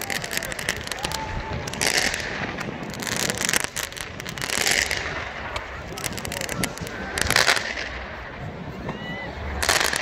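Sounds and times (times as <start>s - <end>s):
fireworks bangs and crackles: 0.0s - 10.0s.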